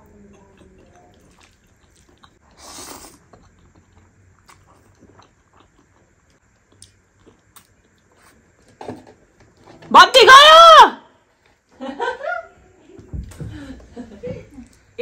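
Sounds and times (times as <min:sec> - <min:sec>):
wet chewing clicks: 0:00.3 - 0:08.3
slurping noodles: 0:01.2 - 0:03.6.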